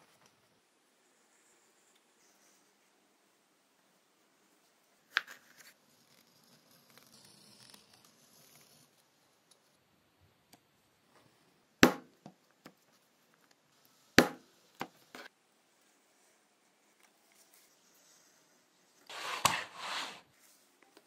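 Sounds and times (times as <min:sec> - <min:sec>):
mallet striking leather chisel: 0:14.2 - 0:14.4.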